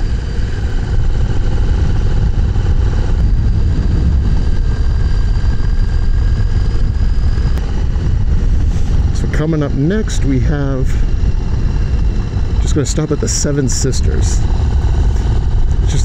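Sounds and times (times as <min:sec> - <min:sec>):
motorcycle engine cruising: 0:00.0 - 0:16.0
road rumble: 0:00.0 - 0:16.0
wind noise: 0:00.0 - 0:16.0.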